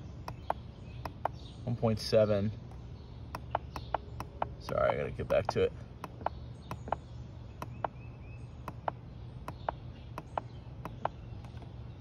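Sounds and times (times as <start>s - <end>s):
steady low hum: 0.0s - 12.0s
push buttons clicking: 0.2s - 1.4s, 3.3s - 7.0s, 7.6s - 8.0s, 8.6s - 11.7s.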